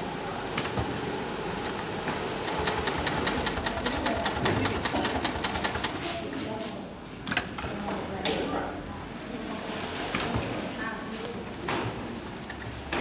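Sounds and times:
sewing machine clattering: 0.5 - 6.2.

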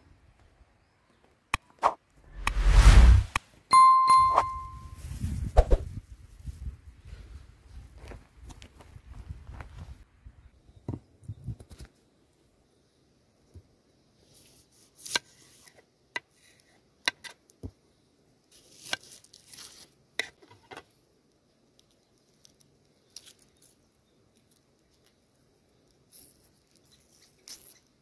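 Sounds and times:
onion skin crackling and tearing: 18.5 - 20.0, 21.7 - 25.2, 25.8 - 27.9.

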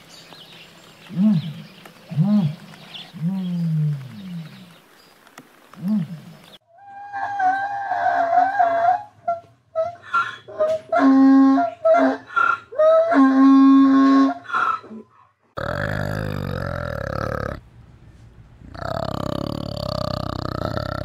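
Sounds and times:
orangutan low calls: 5.8 - 17.6, 18.7 - 21.0.

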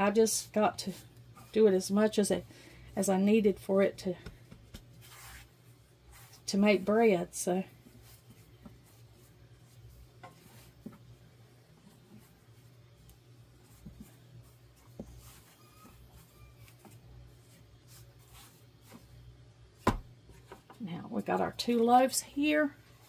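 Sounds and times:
hands kneading dough: 4.0 - 20.3.

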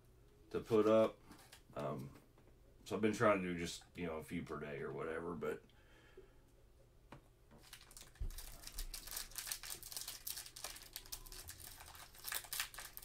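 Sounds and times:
foil wrapper crinkling: 7.6 - 13.0.

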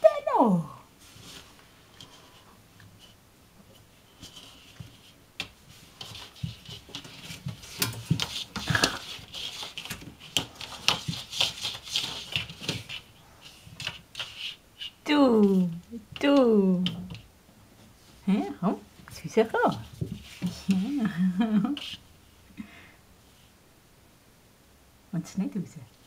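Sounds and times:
cat rustling and clicking: 4.0 - 15.0.

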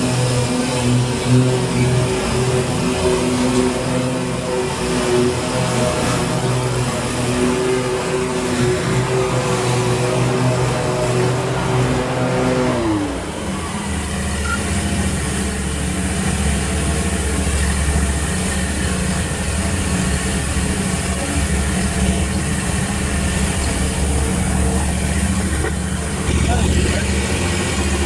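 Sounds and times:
mower engine running: 0.0 - 28.0.

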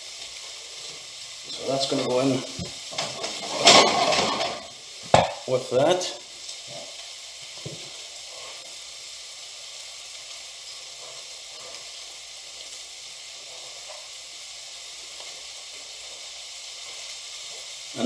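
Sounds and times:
food sizzling in a pan: 0.0 - 18.0.

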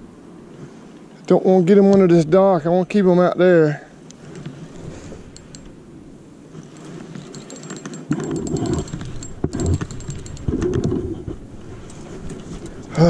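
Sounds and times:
fishing reel clicking: 5.3 - 5.7, 6.7 - 10.8.

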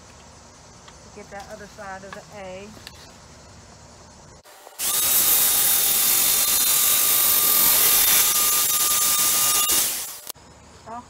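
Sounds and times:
jigsaw motor whine: 4.8 - 10.3.

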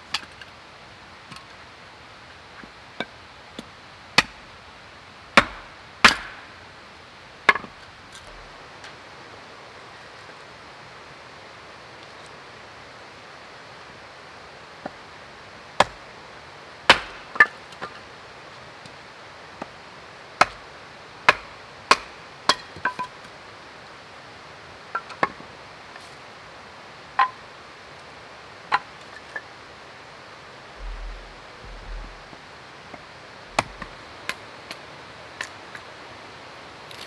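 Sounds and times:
blade chopping into wood: 5.4 - 6.4.

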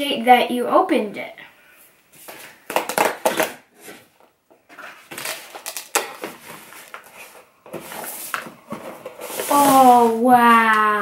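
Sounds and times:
packaging rustling: 2.4 - 10.2.

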